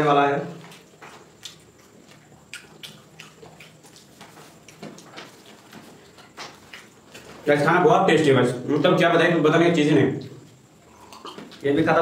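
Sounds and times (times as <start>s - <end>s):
wet smacks of eating by hand: 0.7s - 7.4s.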